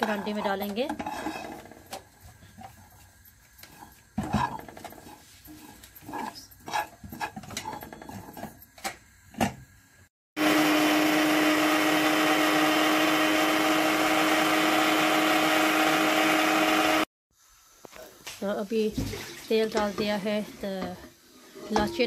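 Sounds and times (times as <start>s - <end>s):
electric spice grinder: 10.4s - 17.1s.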